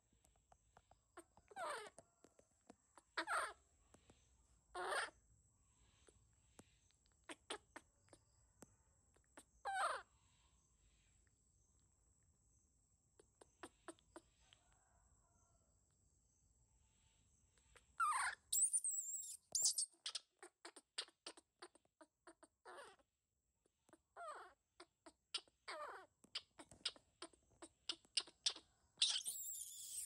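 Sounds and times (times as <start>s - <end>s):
baby monkey crying: 3.2s - 3.6s, 4.8s - 5.1s, 18.0s - 23.0s, 23.9s - 30.0s.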